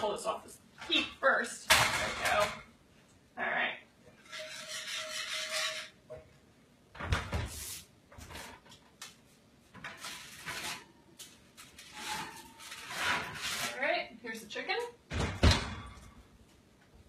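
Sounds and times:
oven rack and pan clanking: 0:09.8 - 0:11.0, 0:11.9 - 0:13.8
oven door opening thump: 0:15.1 - 0:15.9.

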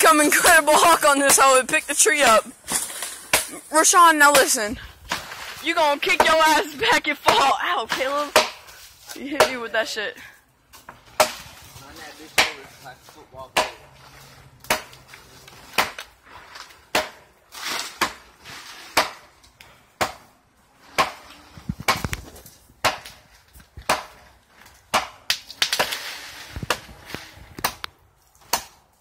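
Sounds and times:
machete chopping into tree: 0:02.7 - 0:03.6, 0:07.3 - 0:08.7, 0:10.8 - 0:11.6, 0:12.4 - 0:12.7, 0:13.6 - 0:13.9, 0:14.6 - 0:15.0, 0:15.7 - 0:16.1, 0:16.9 - 0:18.3, 0:18.9 - 0:19.3, 0:21.8 - 0:23.2, 0:23.8 - 0:27.0, 0:27.6 - 0:28.8.

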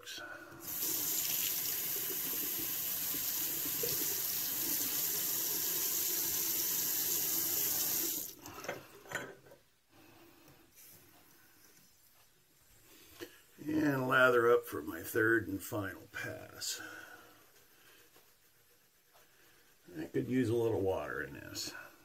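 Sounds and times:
sink tap running: 0:00.6 - 0:08.4.

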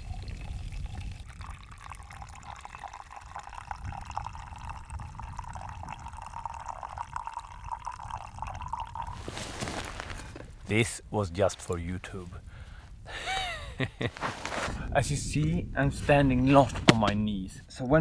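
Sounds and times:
coffee pouring into mug: 0:00.0 - 0:10.0.

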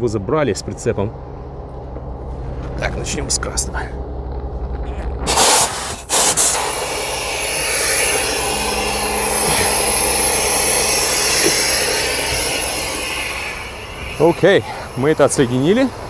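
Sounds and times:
air hissing from hose: 0:05.3 - 0:16.0
compressed air bursts: 0:05.3 - 0:16.0.

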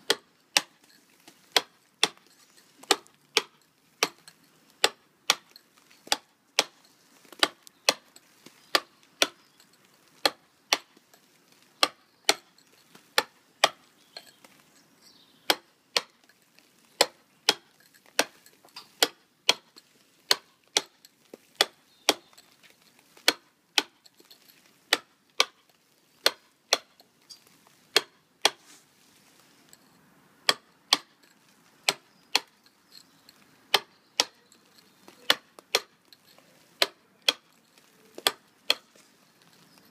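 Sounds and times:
chisel striking stone: 0:00.0 - 0:06.8, 0:07.4 - 0:09.5, 0:10.2 - 0:11.0, 0:11.8 - 0:14.3, 0:15.5 - 0:16.2, 0:17.0 - 0:21.0, 0:21.6 - 0:22.6, 0:24.9 - 0:25.6, 0:26.2 - 0:27.0, 0:27.9 - 0:28.6, 0:30.4 - 0:31.3, 0:31.9 - 0:32.6, 0:33.7 - 0:38.9.

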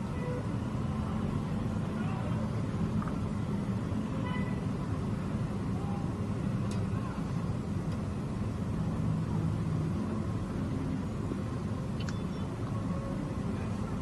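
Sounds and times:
passing traffic rumble: 0:00.0 - 0:14.0
sharp click: 0:12.0 - 0:12.2.

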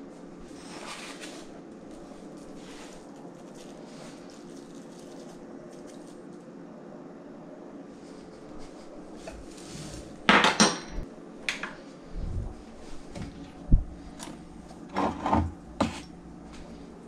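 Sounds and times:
steady low hum: 0:00.0 - 0:17.0
utensils clinking on countertop: 0:10.3 - 0:11.0.

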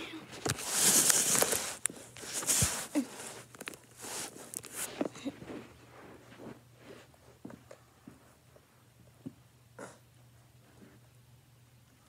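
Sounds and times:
clothing rustling on carpet: 0:00.2 - 0:08.4.

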